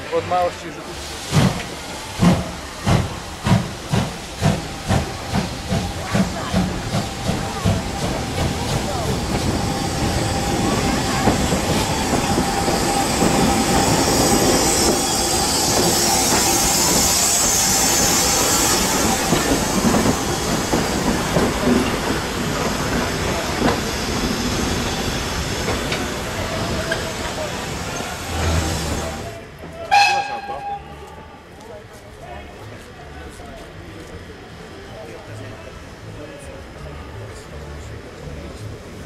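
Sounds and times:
steam hiss: 0:00.0 - 0:29.4.

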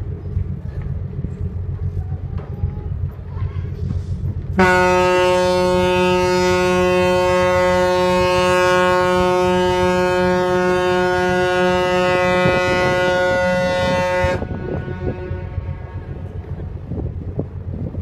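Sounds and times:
ship's horn blast: 0:04.5 - 0:16.9.

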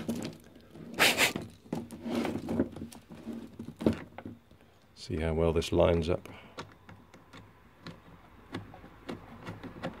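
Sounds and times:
hose fitting clicks and knocks: 0:05.1 - 0:10.0.

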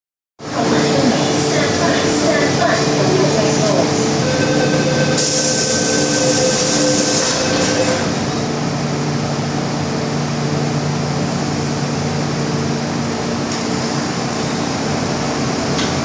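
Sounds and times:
ventilation hum: 0:00.4 - 0:16.0
steady tone: 0:00.6 - 0:08.4
train doors closing: 0:00.8 - 0:08.2.

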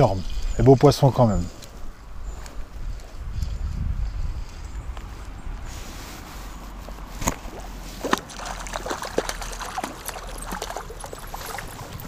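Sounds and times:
fish splashing in water: 0:07.2 - 0:12.0.

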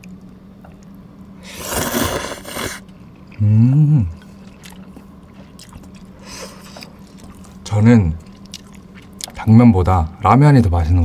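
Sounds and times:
noodles slurped: 0:01.4 - 0:02.8
person humming with full mouth: 0:03.4 - 0:04.2.

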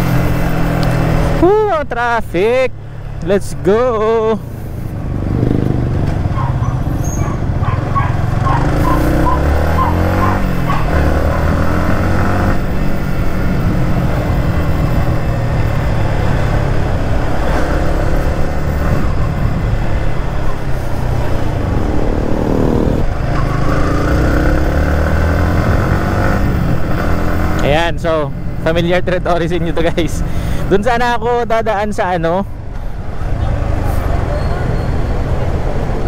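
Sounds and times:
motorcycle engine running: 0:04.5 - 0:27.9.

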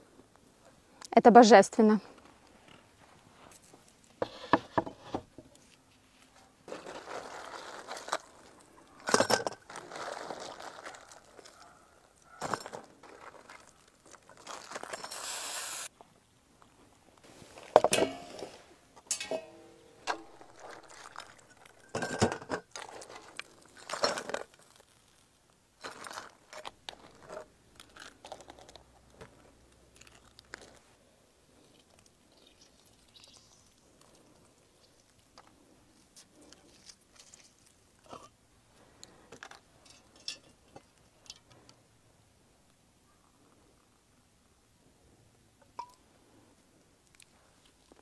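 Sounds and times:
short hiss: 0:15.1 - 0:15.9
sharp metal clanks: 0:19.0 - 0:20.3.

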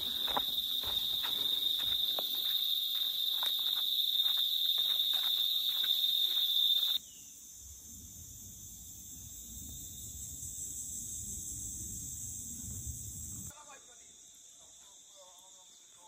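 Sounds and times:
footsteps on dirt road: 0:00.0 - 0:07.0
insects droning: 0:00.0 - 0:16.0.

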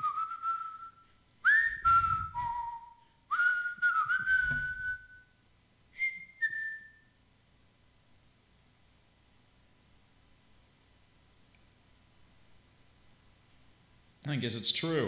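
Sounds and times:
person whistling a tune: 0:00.0 - 0:05.4, 0:06.0 - 0:07.2
low rumbling: 0:01.5 - 0:02.9.

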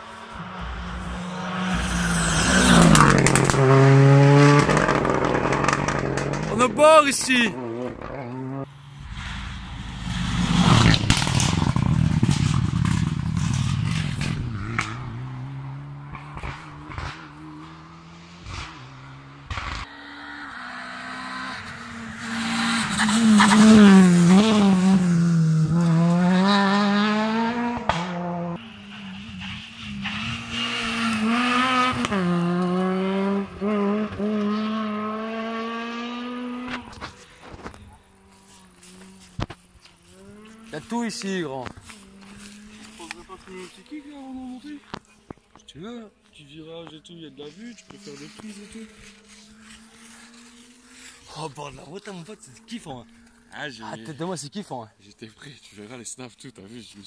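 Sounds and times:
rally car engine revving past: 0:00.0 - 0:06.8, 0:07.5 - 0:43.9, 0:47.9 - 0:53.2
sharp exhaust crack: 0:00.4 - 0:07.6, 0:08.7 - 0:15.2.

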